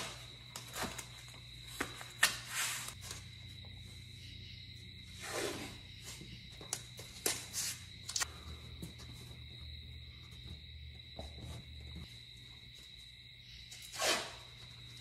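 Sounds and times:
cardboard and tape rustling: 0.0s - 3.4s.

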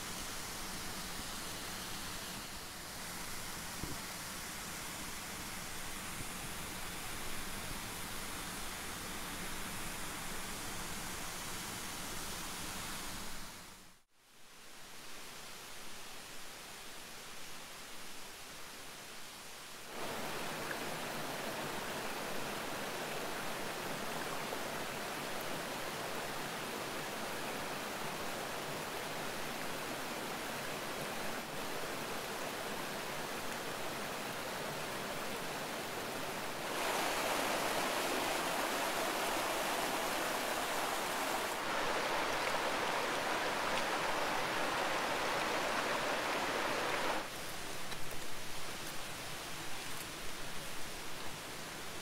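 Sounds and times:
stream water rushing: 0.0s - 14.0s, 15.0s - 52.0s
light water splashes: 36.2s - 49.0s.

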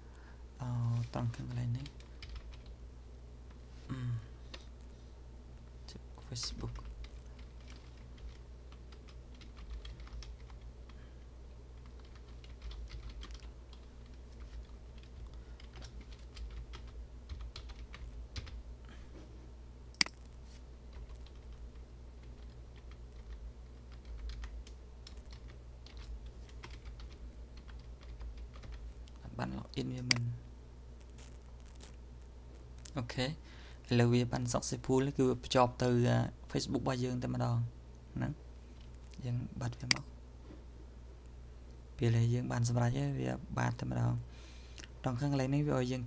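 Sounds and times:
faint low hum: 0.0s - 46.0s
computer keyboard clicks: 11.8s - 14.2s, 15.0s - 18.6s.

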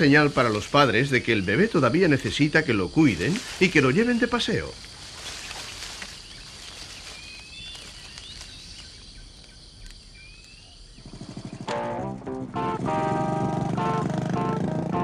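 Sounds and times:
bird chirps: 0.0s - 11.9s.

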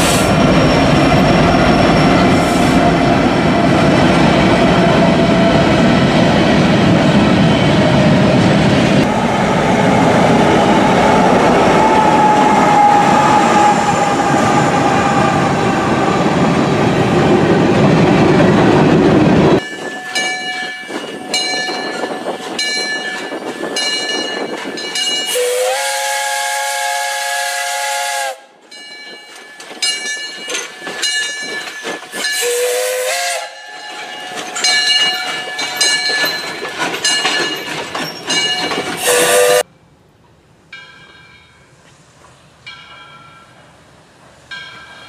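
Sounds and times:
hissing steam: 0.0s - 0.6s
locomotive bell ringing: 19.6s - 25.5s, 28.7s - 32.7s, 33.4s - 39.0s, 40.7s - 41.8s, 42.7s - 43.8s, 44.5s - 45.0s
steam whistle blasts: 25.2s - 28.6s, 32.2s - 33.6s, 39.0s - 39.7s.

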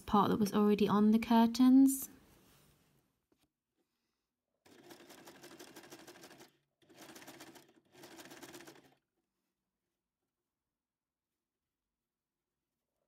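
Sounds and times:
sewing machine stitching: 4.6s - 9.0s.

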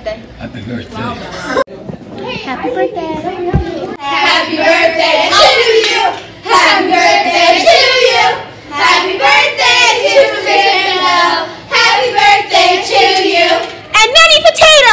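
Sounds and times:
children singing together: 4.0s - 13.8s.

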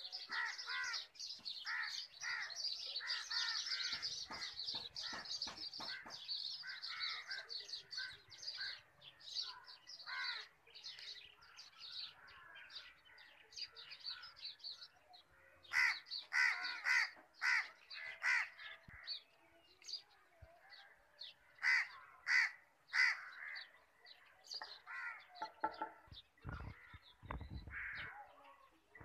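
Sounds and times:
small birds chirping faintly: 0.0s - 29.0s
crows cawing: 0.3s - 8.8s, 10.0s - 10.5s, 15.4s - 19.1s, 21.6s - 23.7s, 24.8s - 25.5s, 27.7s - 28.2s.

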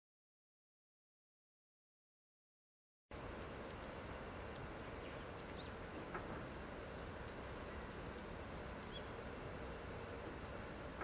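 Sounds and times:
low background rumble: 3.1s - 11.0s
birds chirping: 3.2s - 11.0s.

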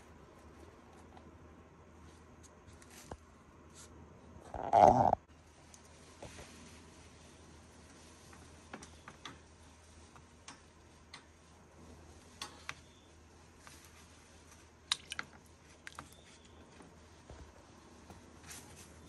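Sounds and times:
metal tongs clicking and tapping: 10.4s - 11.3s.

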